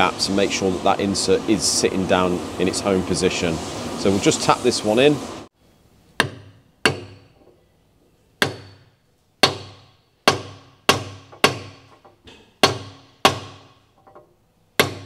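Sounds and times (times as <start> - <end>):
mallet striking metal pin: 6.2 - 7.6, 8.4 - 15.0.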